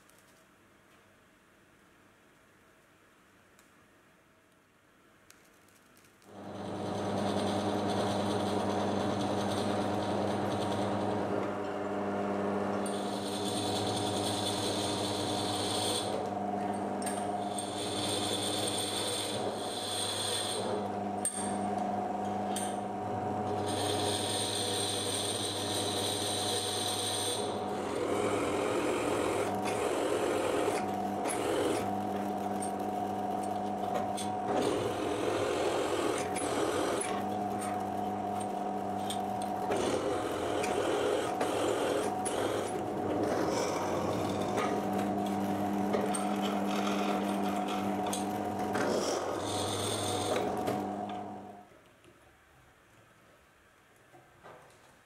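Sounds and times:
rough metal cutting noise: 6.4s - 11.6s, 12.6s - 21.7s, 22.5s - 51.6s
drill press motor running: 6.4s - 51.6s.

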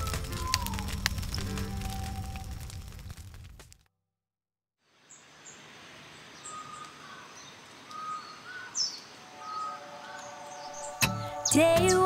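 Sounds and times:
birds chirping and whistling: 0.0s - 2.6s, 6.4s - 12.0s.

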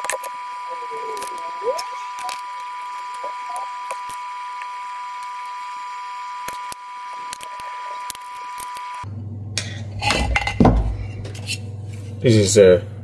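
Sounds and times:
wiring connectors clicking: 0.0s - 5.6s, 6.4s - 9.0s
high-pitched electronic whine: 0.0s - 9.2s
low hum: 0.0s - 12.2s.

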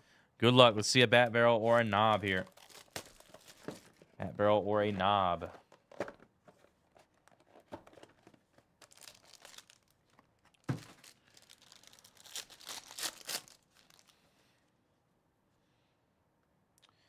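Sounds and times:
foil wrapper crinkling and tearing: 2.0s - 3.9s, 8.8s - 14.2s
thump: 10.7s - 10.9s.

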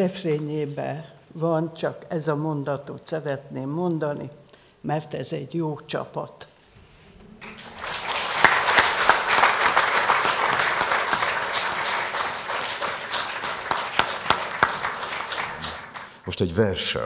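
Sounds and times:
audience applause: 7.4s - 16.3s.

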